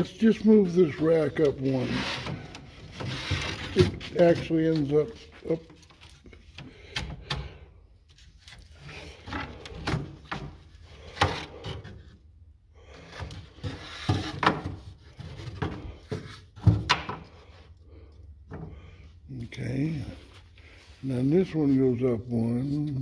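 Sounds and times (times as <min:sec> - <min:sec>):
wooden knocks and scrapes: 0:00.6 - 0:06.2, 0:13.1 - 0:17.5.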